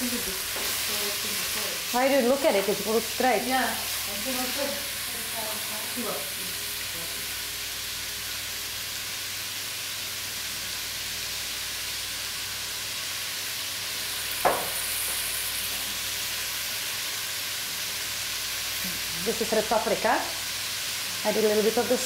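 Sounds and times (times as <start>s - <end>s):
meat sizzling in a pot: 0.0s - 22.0s
sharp knock: 14.4s - 14.8s.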